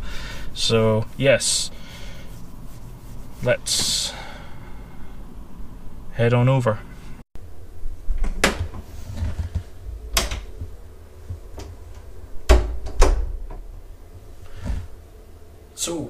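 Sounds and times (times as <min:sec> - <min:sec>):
low rumble: 0:09.6 - 0:15.6.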